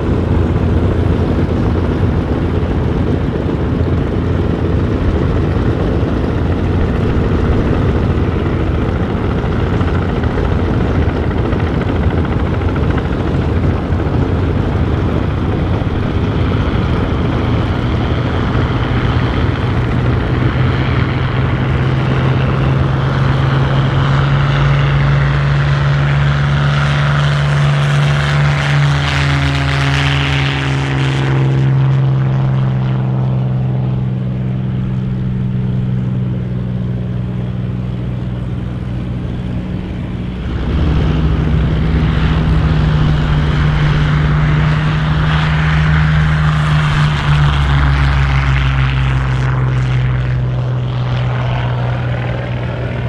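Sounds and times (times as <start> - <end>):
propeller plane engine taking off: 0.0 - 53.0.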